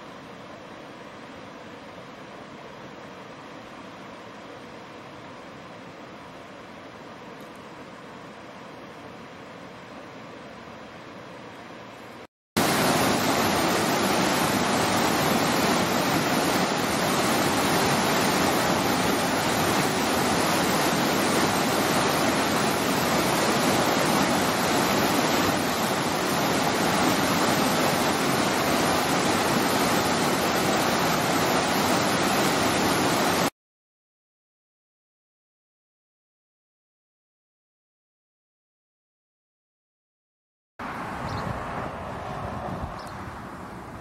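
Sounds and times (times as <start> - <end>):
stream rushing over rocks: 12.6 - 33.5.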